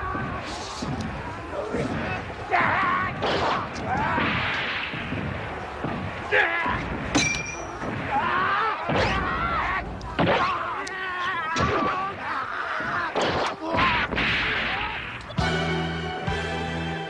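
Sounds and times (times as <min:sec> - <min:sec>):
voices yelling and shrieking: 0:00.0 - 0:15.4
weapons clashing: 0:00.0 - 0:15.4
thuds and bangs: 0:03.1 - 0:09.4
music: 0:15.2 - 0:17.0.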